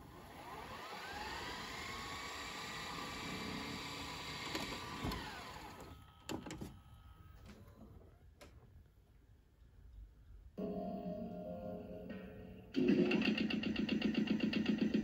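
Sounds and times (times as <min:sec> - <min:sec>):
tape rewinding motor whine: 0:00.0 - 0:06.4.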